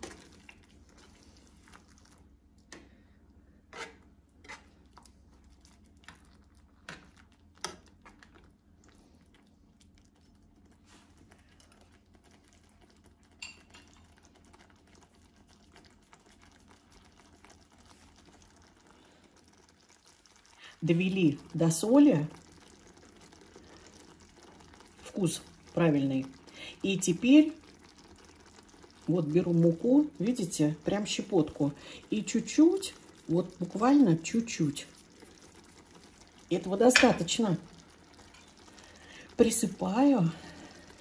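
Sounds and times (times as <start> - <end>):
spoon scraping pan: 3.7 - 4.9.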